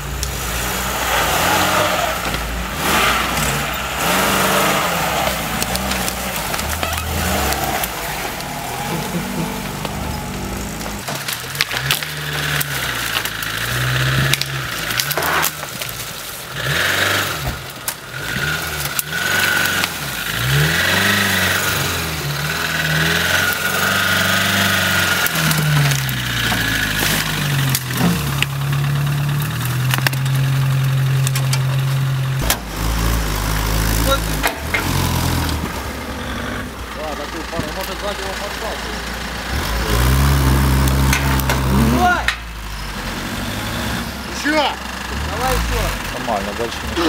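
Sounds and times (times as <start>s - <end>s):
off-road vehicle engine revving: 0.0s - 47.0s
sharp knocks and snaps: 5.5s - 8.5s, 9.7s - 16.2s, 25.2s - 28.6s, 29.4s - 30.4s.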